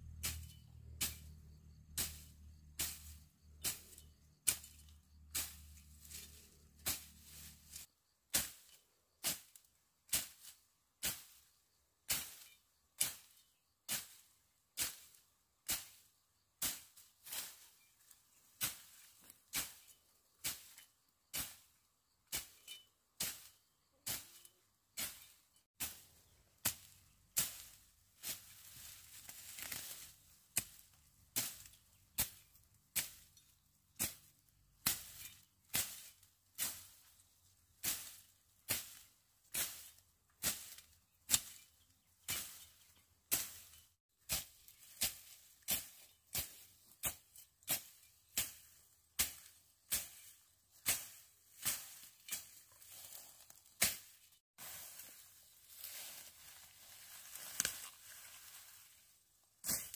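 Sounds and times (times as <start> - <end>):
hand tool striking: 0.2 - 9.4, 24.1 - 28.5, 29.2 - 37.0, 37.8 - 55.3, 59.6 - 59.9.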